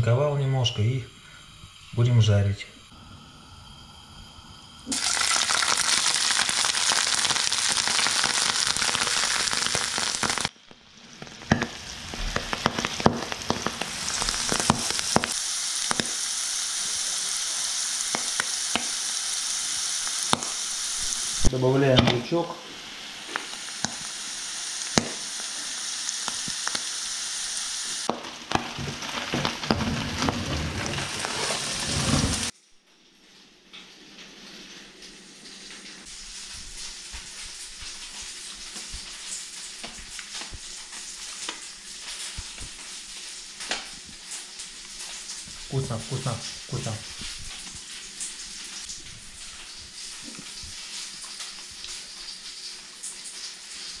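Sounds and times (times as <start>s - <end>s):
food sizzling in a pan: 0.0s - 54.0s
steady hiss: 0.0s - 54.0s
crackling pops: 4.9s - 16.3s, 18.0s - 19.1s, 20.0s - 22.3s, 23.2s - 24.2s, 24.8s - 25.5s, 26.1s - 27.0s, 28.0s - 31.6s.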